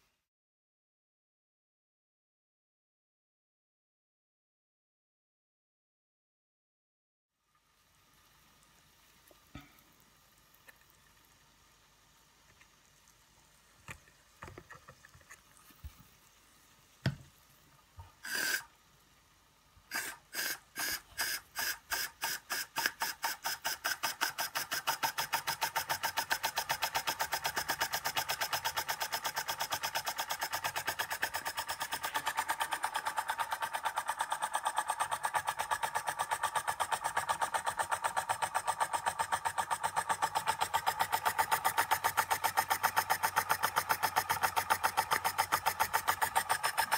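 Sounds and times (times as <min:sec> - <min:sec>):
short steam hiss: 0:18.2 - 0:18.7, 0:19.9 - 0:24.4
steam engine chuffing: 0:19.9 - 0:46.9.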